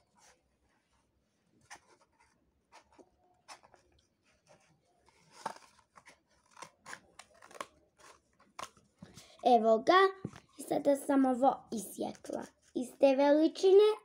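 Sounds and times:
scissors snipping cardboard tube: 6.4 - 8.7.

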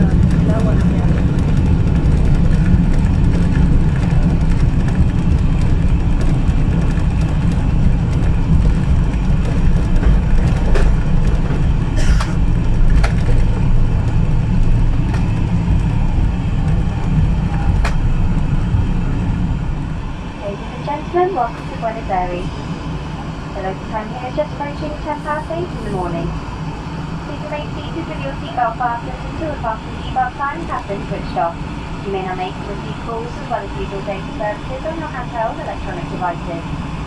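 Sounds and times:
sharp clicks and rattles: 0.0 - 19.0
airplane cabin low rumble: 0.0 - 37.0.

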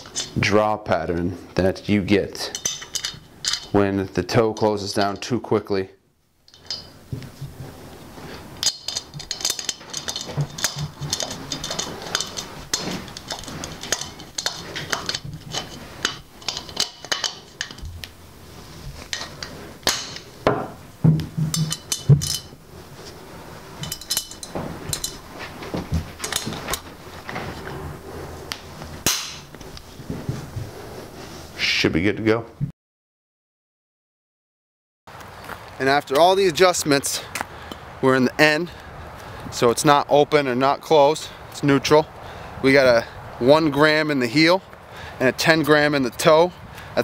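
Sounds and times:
small metallic clicks and clinks: 6.5 - 7.0, 8.6 - 18.1, 21.5 - 22.5, 23.8 - 25.2
handling rustle: 6.5 - 31.6.

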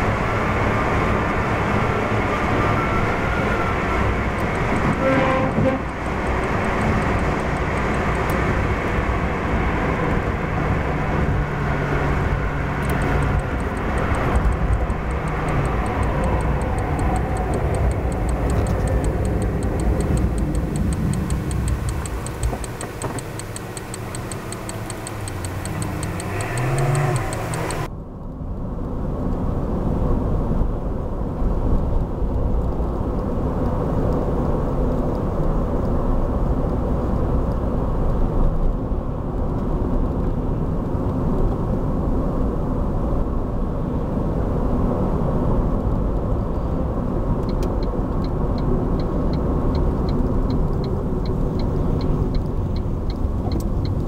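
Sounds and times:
car engine and tyre noise: 0.0 - 54.0
fast regular ticking: 4.3 - 9.1, 12.1 - 27.9, 47.6 - 54.0.

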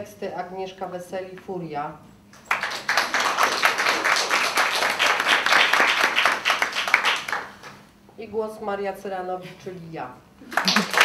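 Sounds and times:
audience applauding: 2.4 - 7.7, 10.4 - 11.0.

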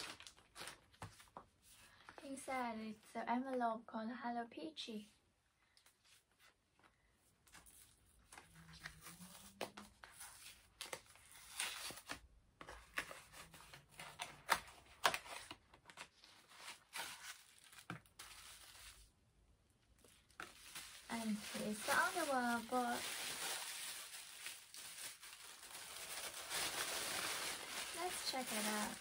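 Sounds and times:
paper crinkling and rustling: 0.0 - 2.4, 6.1 - 19.1, 20.0 - 29.0
paper envelope tearing: 20.4 - 29.0.

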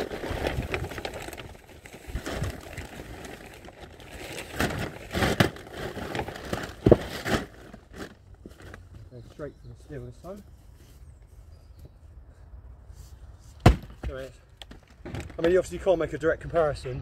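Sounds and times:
firewood rustling and scraping: 0.0 - 9.2, 12.9 - 15.8.

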